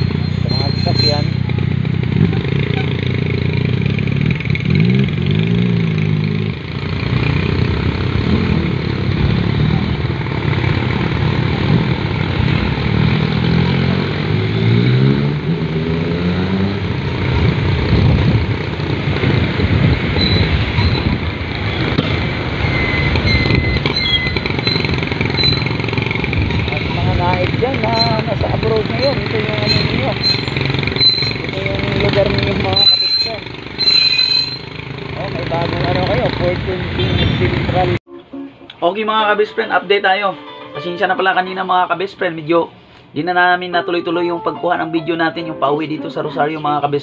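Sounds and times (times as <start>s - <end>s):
motorcycle engine running: 0.0s - 13.4s, 23.1s - 38.0s
road and traffic noise: 0.0s - 47.0s.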